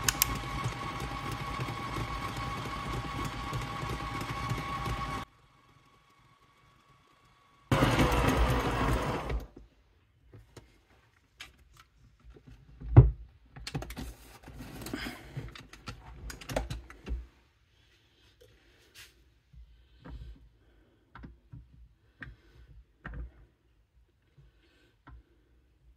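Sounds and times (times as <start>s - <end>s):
stand mixer motor: 0.0s - 9.5s.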